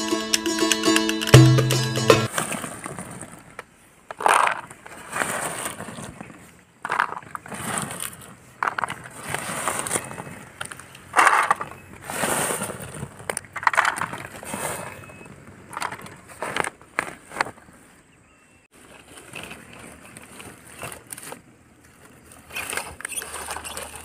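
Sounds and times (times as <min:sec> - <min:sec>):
dried fruits clattering on plastic trucks: 0:02.3 - 0:17.7.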